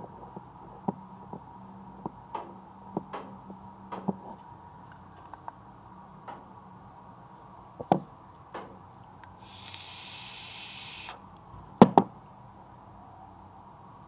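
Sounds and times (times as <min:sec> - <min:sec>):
e-cigarette vaping hiss: 0:09.4 - 0:11.3.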